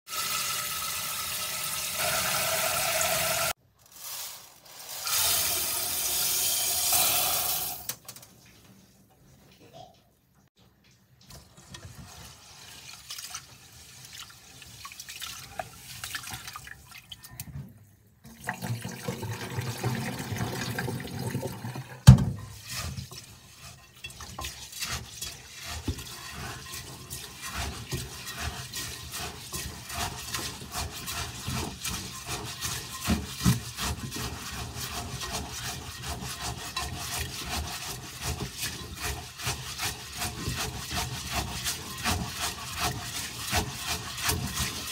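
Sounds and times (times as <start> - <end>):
rice scrubbed against pot: 2.0 - 7.7, 22.4 - 44.9.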